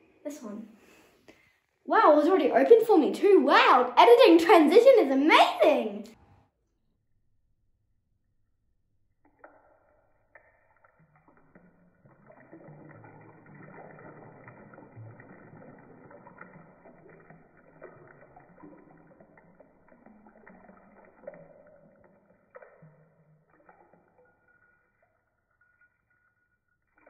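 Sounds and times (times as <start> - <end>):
bath water sloshing: 10.8 - 24.6.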